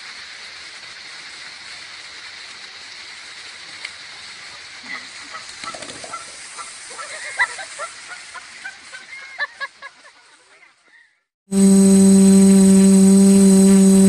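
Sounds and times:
loud steady buzzing drone: 0:11.5 - 0:14.0.

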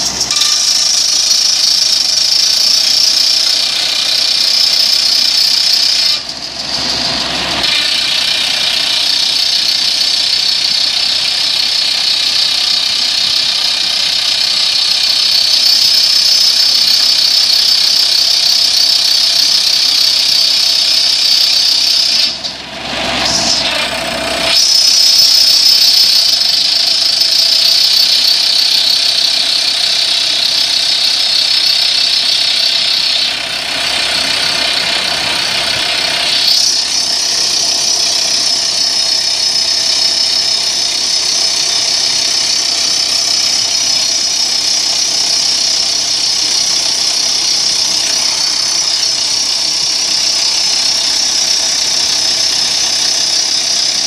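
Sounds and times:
rock drill drilling: 0:00.0 - 0:54.0.

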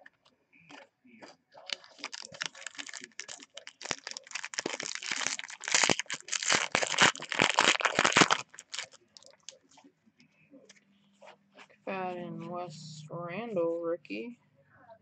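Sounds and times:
foil wrapper tearing and crinkling: 0:01.6 - 0:09.6.

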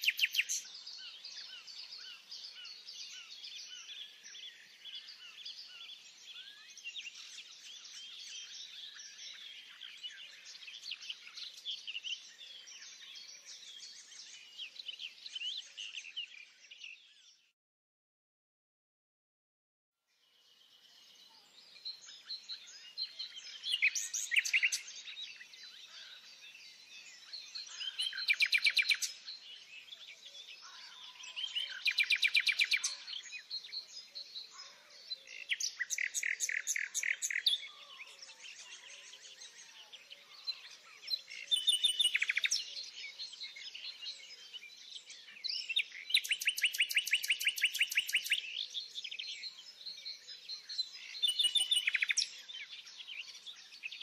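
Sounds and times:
songbird trilled phrases: 0:00.0 - 0:00.7, 0:22.3 - 0:26.2, 0:27.3 - 0:54.0
faint bird twittering: 0:00.0 - 0:17.4, 0:20.5 - 0:54.0.

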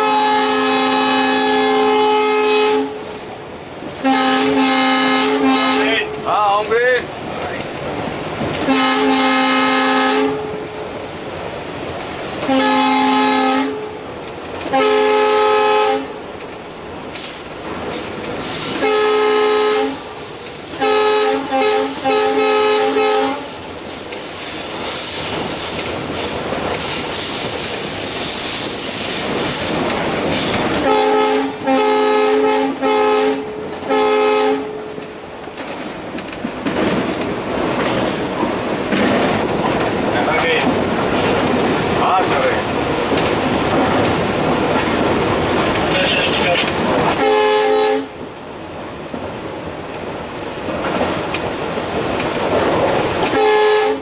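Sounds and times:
locomotive air horn blasts: 0:00.0 - 0:03.2, 0:04.0 - 0:06.1, 0:08.6 - 0:10.6, 0:12.4 - 0:14.0, 0:14.6 - 0:16.1, 0:18.8 - 0:20.1, 0:20.7 - 0:23.5, 0:30.8 - 0:34.8, 0:47.1 - 0:48.1, 0:53.3 - 0:54.0
wheels squealing on rails: 0:02.6 - 0:03.5, 0:19.8 - 0:31.7
locomotive running noise: 0:35.0 - 0:47.7.

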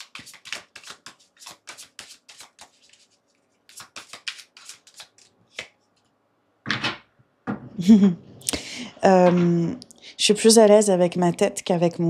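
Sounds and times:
cards being shuffled by hand: 0:00.0 - 0:06.1.

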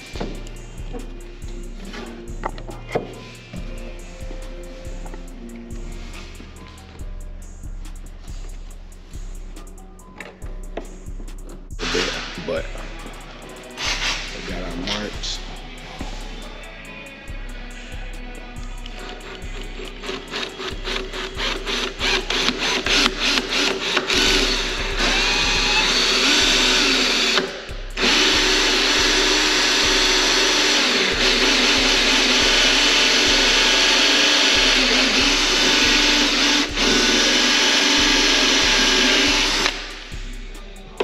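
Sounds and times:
power drill running: 0:11.8 - 0:12.4, 0:13.8 - 0:15.0, 0:20.0 - 0:40.1.

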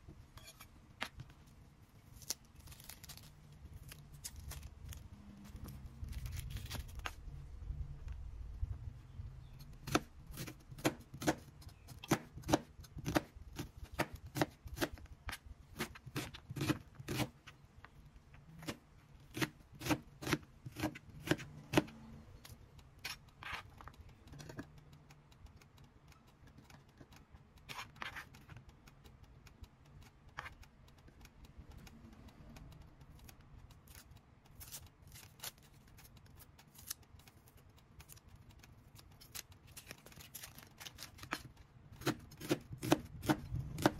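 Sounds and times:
knife chopping on plastic board: 0:09.8 - 0:17.5, 0:18.6 - 0:22.0, 0:41.2 - 0:43.9.

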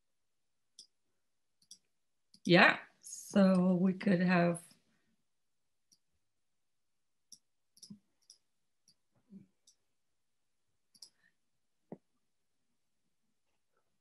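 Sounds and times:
computer mouse clicks: 0:01.6 - 0:02.5, 0:07.3 - 0:09.0, 0:10.9 - 0:11.2.

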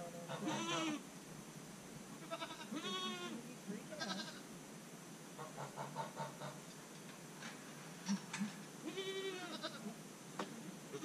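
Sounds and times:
hen clucking: 0:00.0 - 0:01.0, 0:05.4 - 0:06.7
goat bleating: 0:00.3 - 0:01.0, 0:02.2 - 0:04.5, 0:08.1 - 0:10.0.

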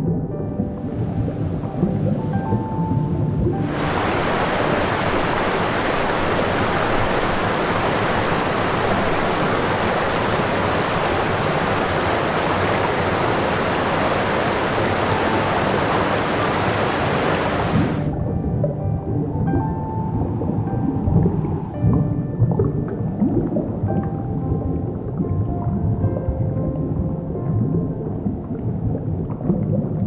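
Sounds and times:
water rushing: 0:00.7 - 0:18.2.

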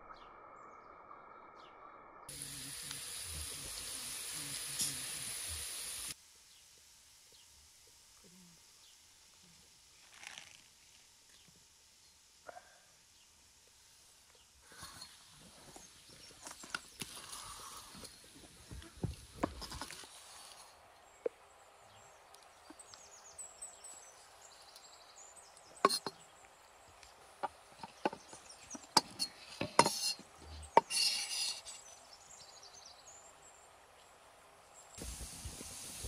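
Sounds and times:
knife scraping: 0:25.8 - 0:26.2, 0:27.9 - 0:32.0.

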